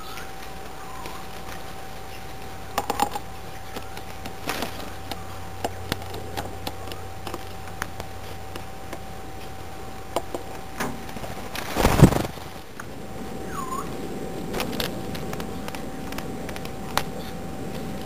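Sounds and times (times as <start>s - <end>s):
birds pecking seed: 0.0s - 18.0s
bird wings flapping: 10.8s - 12.8s.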